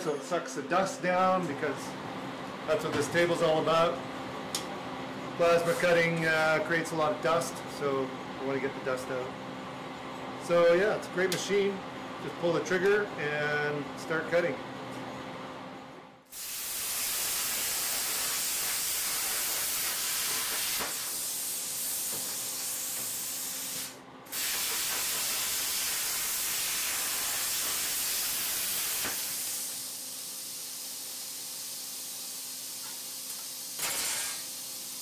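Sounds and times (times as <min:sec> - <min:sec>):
extraction fan hiss and hum: 0:00.0 - 0:35.0
plasma cutter arc hissing: 0:16.3 - 0:35.0.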